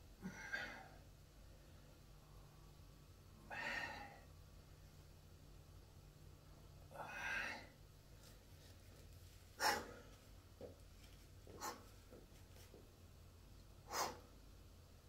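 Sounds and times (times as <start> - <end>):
man breathing hard: 3.5 - 4.3, 9.6 - 10.2, 11.5 - 12.0, 13.8 - 14.4.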